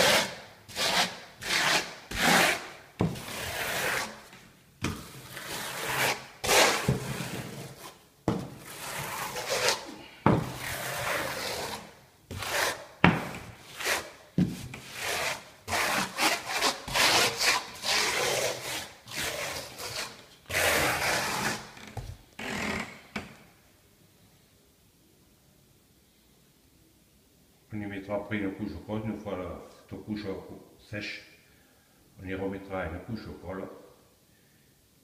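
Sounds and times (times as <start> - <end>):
trowel scraping wet adhesive: 0.0 - 4.2, 4.9 - 12.9, 13.6 - 21.8.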